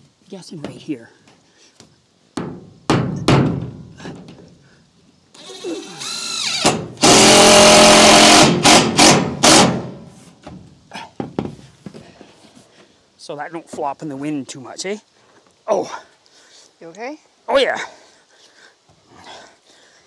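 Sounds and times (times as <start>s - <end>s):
knock: 2.4s - 3.8s
power drill driving screw into metal: 5.4s - 10.0s.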